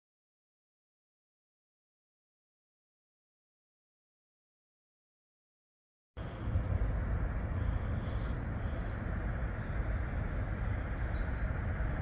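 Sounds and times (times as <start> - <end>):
distant vehicles rumbling: 6.2 - 12.0.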